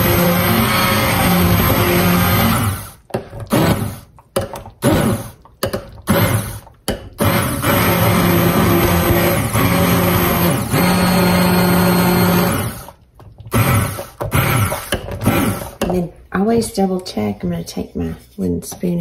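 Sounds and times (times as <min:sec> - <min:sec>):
immersion blender motor running: 0:00.0 - 0:04.1, 0:06.1 - 0:15.8.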